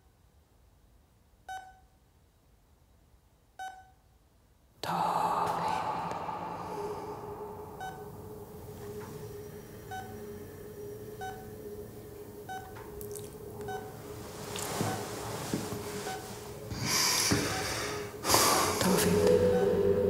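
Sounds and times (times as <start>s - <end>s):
heart monitor beeping: 1.5s - 1.9s, 3.6s - 4.0s, 7.2s - 18.1s
steady low hum: 4.8s - 20.0s.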